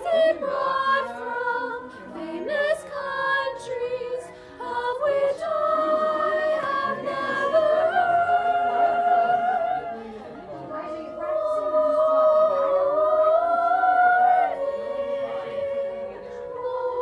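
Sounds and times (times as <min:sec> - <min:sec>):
girls singing a cappella: 0:00.0 - 0:17.0.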